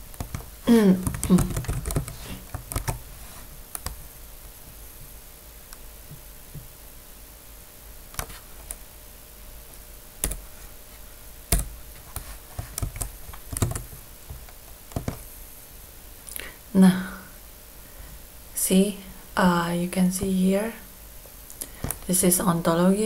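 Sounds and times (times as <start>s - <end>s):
faint room hum: 0.0s - 23.0s
computer keyboard keystrokes: 0.1s - 3.0s, 10.2s - 10.4s, 11.5s - 13.9s, 14.9s - 15.2s.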